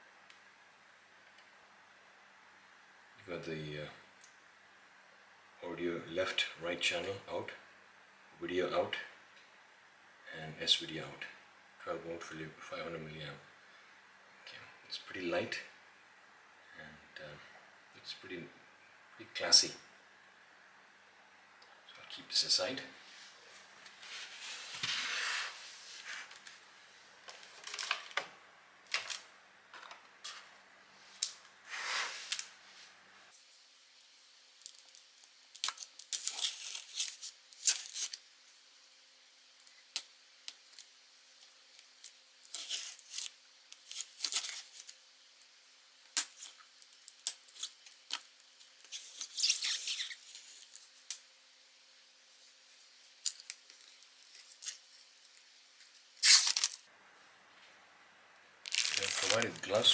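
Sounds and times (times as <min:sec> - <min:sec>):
packing tape being slit: 0:34.6 - 0:38.2, 0:41.8 - 0:45.0, 0:46.1 - 0:51.2, 0:53.2 - 0:55.4, 0:56.2 - 0:56.8, 0:58.6 - 0:59.9.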